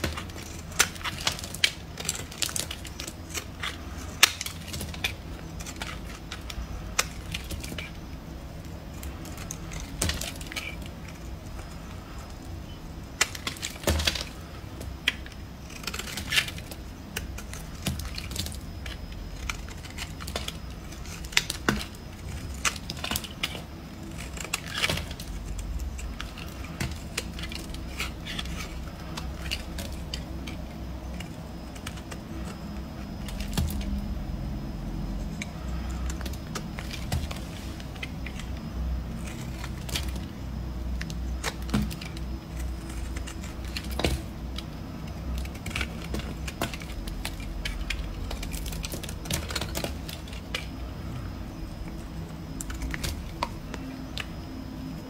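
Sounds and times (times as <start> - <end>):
low steady hum: 0.0 - 55.0
soap chips crackling: 8.6 - 40.3
knife blade scraping soap: 13.1 - 34.0, 35.2 - 40.3, 41.0 - 50.8.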